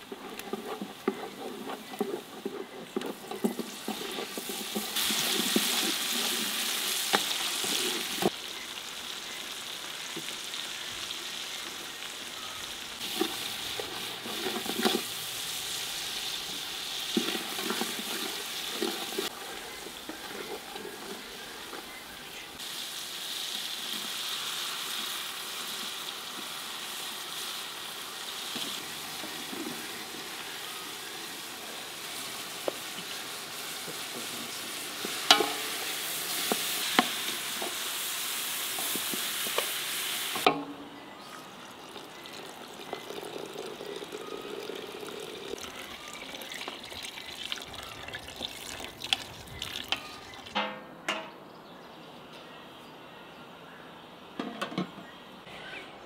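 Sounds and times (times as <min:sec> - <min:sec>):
wooden spoon stirring: 0:00.0 - 0:08.3, 0:13.0 - 0:22.4, 0:28.5 - 0:38.1
vegetables sizzling in oil: 0:00.0 - 0:50.6
wooden spoon knocking on metal: 0:35.2 - 0:35.7.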